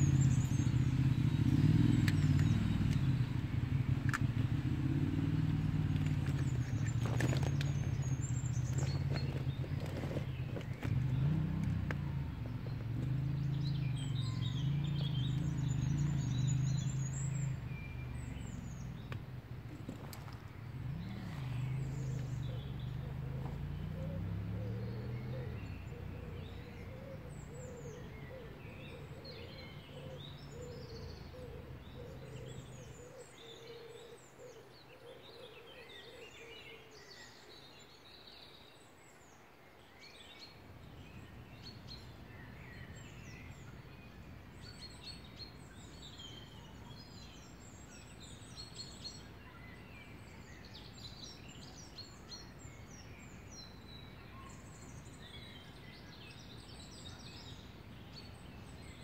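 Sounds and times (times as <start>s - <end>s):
low background rumble: 0.0s - 24.4s
songbirds singing and chirping: 0.0s - 59.0s.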